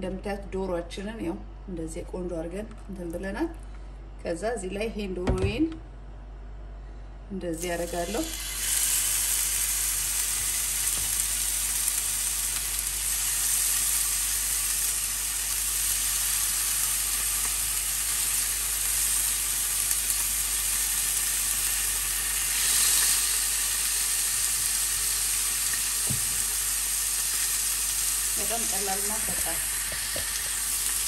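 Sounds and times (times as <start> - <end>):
chicken sizzling in grill pan: 7.6 - 31.0.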